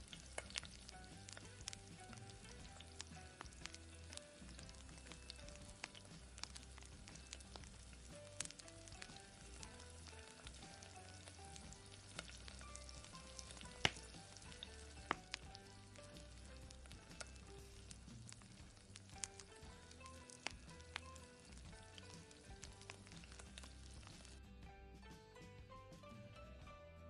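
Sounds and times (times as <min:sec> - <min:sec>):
meat sizzling in oil: 0:00.0 - 0:24.4
soft background music: 0:00.0 - 0:27.0
sharp oil pops: 0:12.2 - 0:15.5.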